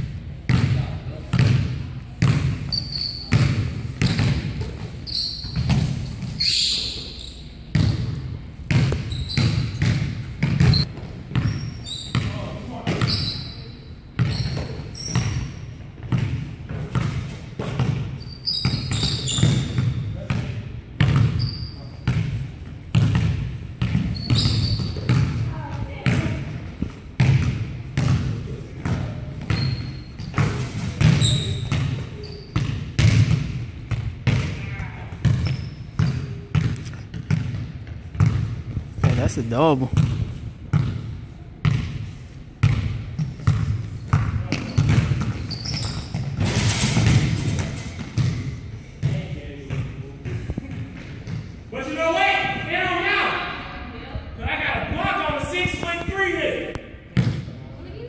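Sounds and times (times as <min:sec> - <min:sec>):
sneaker squeaks: 0:02.2 - 0:28.2, 0:28.8 - 0:33.4, 0:34.3 - 0:38.4, 0:41.6 - 0:51.6
basketball bouncing on hardwood: 0:07.7 - 0:12.3, 0:22.0 - 0:32.0, 0:32.6 - 0:39.2, 0:39.9 - 0:41.0, 0:42.6 - 0:49.8, 0:57.2 - 0:57.4.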